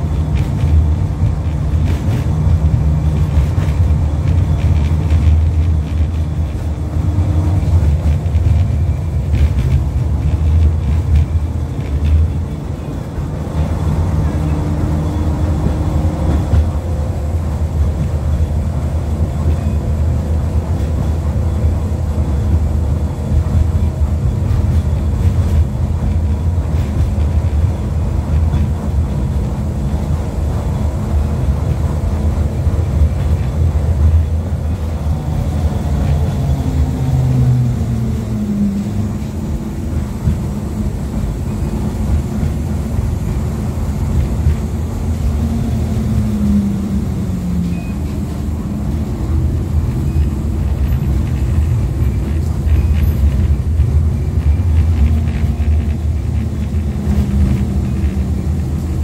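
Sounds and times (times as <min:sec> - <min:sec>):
tram wheels rumbling on rails: 0:00.0 - 0:59.0.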